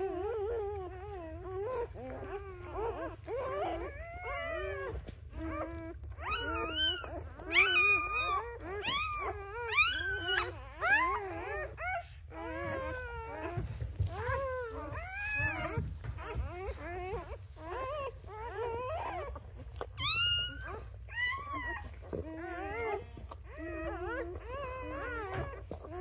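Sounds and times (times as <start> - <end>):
puppies squealing and crying: 0.0 - 26.0.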